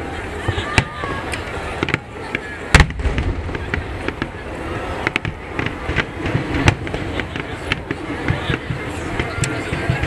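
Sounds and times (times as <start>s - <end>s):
fireworks cracks and bangs: 0.3s - 10.0s
deep firework boom: 2.7s - 8.3s.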